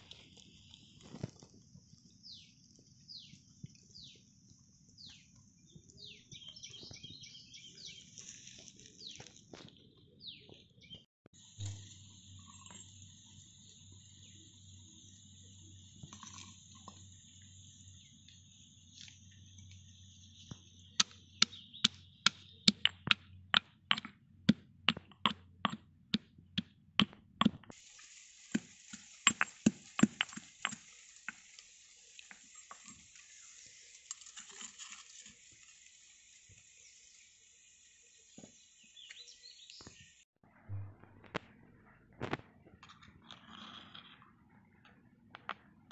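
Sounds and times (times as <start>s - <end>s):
stone pestle pounding in mortar: 21.0s - 27.8s, 28.6s - 30.8s
spoon scraping in a mortar: 28.5s - 35.7s, 43.0s - 44.2s.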